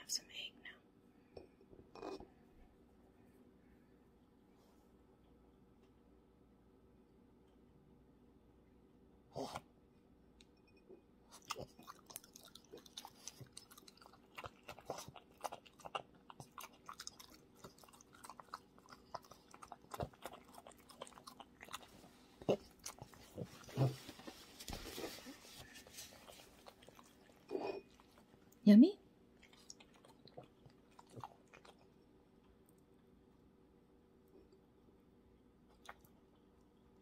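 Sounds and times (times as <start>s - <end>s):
dog chewing and smacking: 11.4s - 28.4s.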